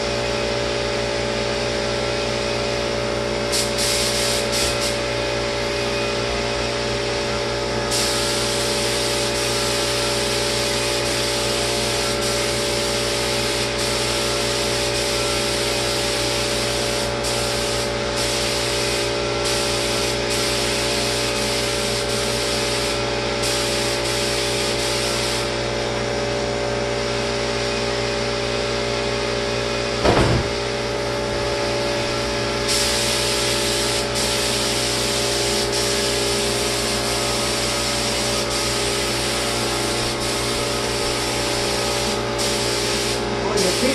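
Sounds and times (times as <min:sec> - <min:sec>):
spray gun hissing: 0:03.5 - 0:05.1, 0:07.9 - 0:25.5, 0:32.6 - 0:43.9
sprayer motor hum: 0:29.8 - 0:43.9
short thump: 0:30.0 - 0:30.6.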